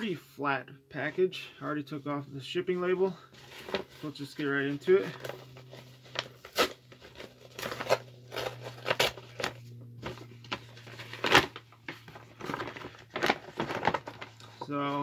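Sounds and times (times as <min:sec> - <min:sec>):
steady low hum: 0:00.0 - 0:15.0
paper mailer tearing and crinkling: 0:03.4 - 0:15.0.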